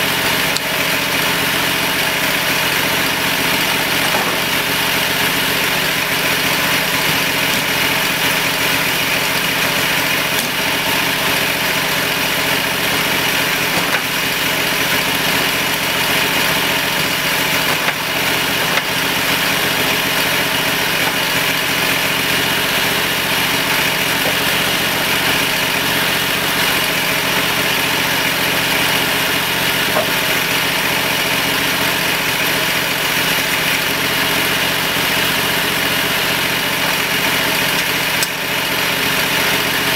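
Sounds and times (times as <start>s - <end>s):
sawmill engine running: 0.0s - 39.9s.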